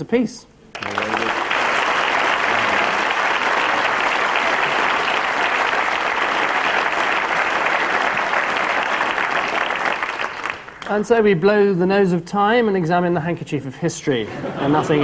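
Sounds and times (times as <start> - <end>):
audience applauding: 0.7 - 10.9.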